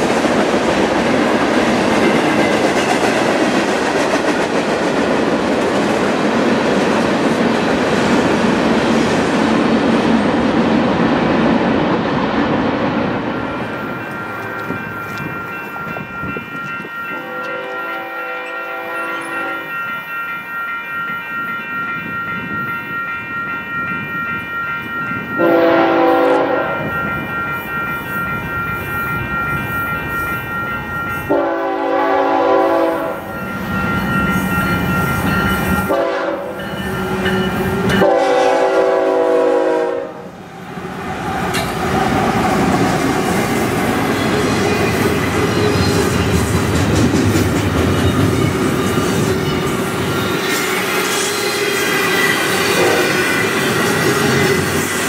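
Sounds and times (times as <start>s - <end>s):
diesel locomotive approaching: 0.0s - 55.0s
train cars rumbling: 0.0s - 55.0s
train air horn blasts: 17.2s - 19.7s, 25.4s - 26.8s, 31.3s - 33.3s, 35.8s - 36.6s, 37.9s - 40.3s, 50.5s - 54.9s.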